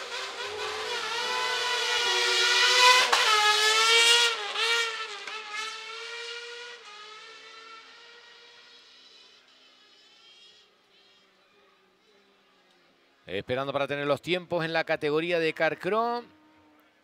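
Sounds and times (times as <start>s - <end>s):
racing buggy engine accelerating: 0.0s - 13.2s.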